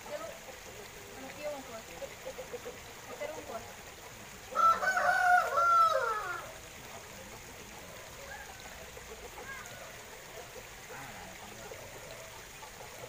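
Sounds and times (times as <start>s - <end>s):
rooster crowing: 4.5s - 6.5s.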